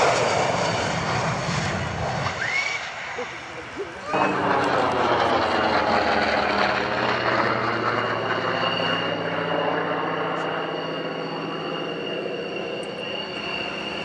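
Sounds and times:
broad rushing noise: 0.0s - 9.5s
jet engine high whine: 0.0s - 14.0s.

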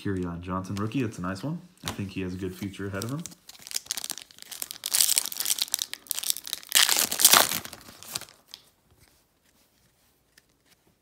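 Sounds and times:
foil wrapper tearing and crinkling: 3.0s - 8.6s.

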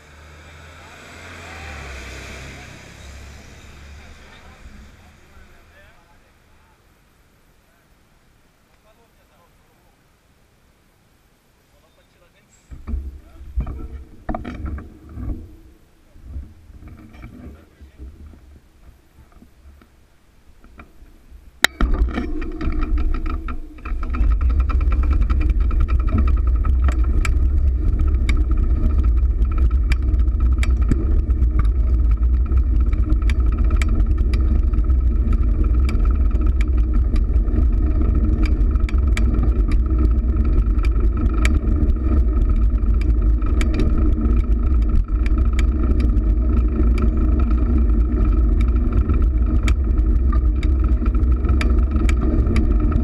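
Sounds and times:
bicycle hum: 0.0s - 11.7s, 12.3s - 53.0s
road rumble: 0.0s - 53.0s
sharp ticks and knocks: 12.7s - 20.0s, 20.6s - 53.0s
wind noise: 20.6s - 53.0s.

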